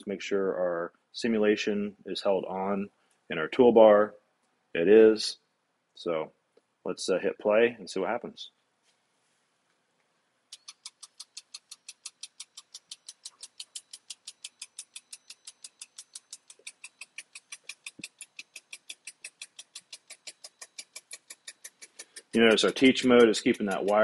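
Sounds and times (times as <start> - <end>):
rapid even ticking: 10.5 - 24.0.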